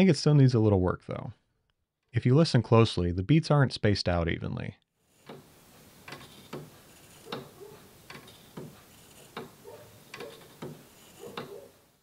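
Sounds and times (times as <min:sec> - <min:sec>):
wooden clock ticking: 0:05.2 - 0:11.9.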